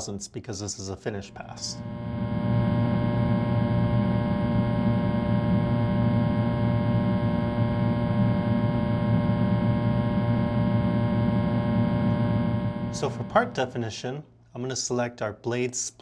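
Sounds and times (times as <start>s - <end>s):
milling machine humming: 1.6s - 13.8s.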